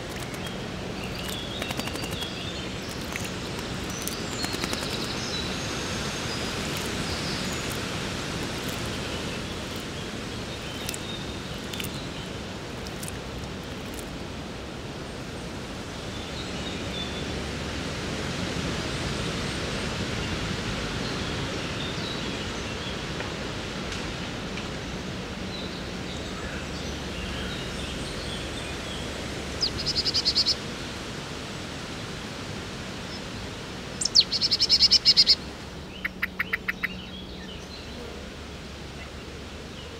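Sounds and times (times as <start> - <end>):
songbird rattling call: 0.0 - 12.0, 29.6 - 30.6, 34.0 - 37.1
woodland background noise: 0.0 - 39.9
faint bird chirps: 29.6 - 30.6, 34.0 - 37.7.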